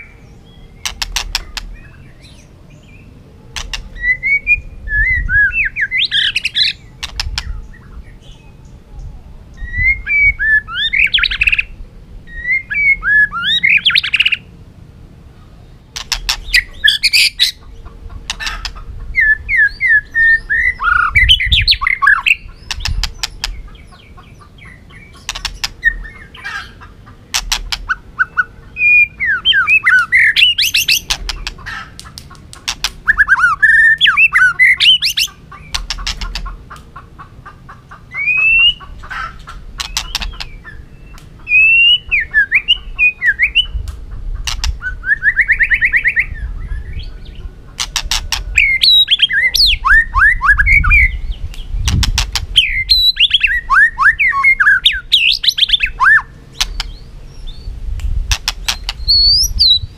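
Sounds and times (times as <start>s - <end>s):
bird sharp clicks: 0.8s - 1.8s, 3.5s - 4.0s, 7.0s - 7.5s, 15.9s - 17.3s, 18.2s - 18.8s, 22.7s - 23.6s, 25.2s - 26.0s, 27.3s - 28.0s, 30.6s - 33.4s, 34.0s - 37.0s, 39.8s - 41.4s, 43.8s - 44.8s, 47.8s - 48.5s, 51.5s - 52.6s, 56.6s - 57.0s, 58.0s - 59.3s
bird singing whistled phrases: 9.6s - 11.7s, 12.3s - 14.4s, 19.2s - 23.0s, 28.2s - 31.1s, 33.1s - 35.3s, 38.1s - 38.8s, 41.5s - 43.8s, 48.6s - 51.2s, 52.6s - 57.7s, 58.7s - 59.9s.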